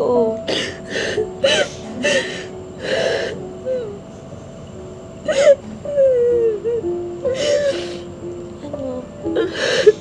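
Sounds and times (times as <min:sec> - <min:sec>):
woman sobbing: 0:00.0 - 0:04.0, 0:05.2 - 0:08.2, 0:09.2 - 0:10.0
wavering whimper: 0:05.2 - 0:08.2.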